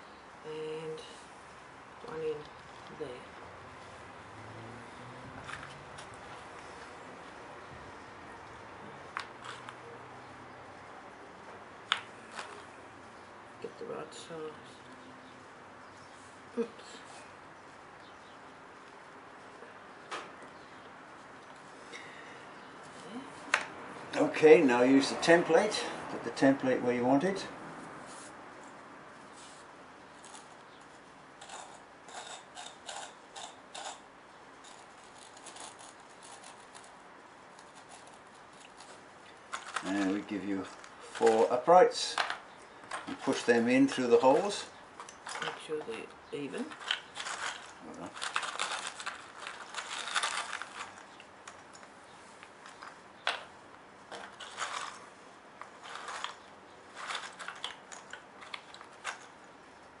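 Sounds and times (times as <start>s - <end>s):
scratchy scrapes: 31.4s - 34.0s, 34.6s - 40.2s, 55.8s - 57.7s.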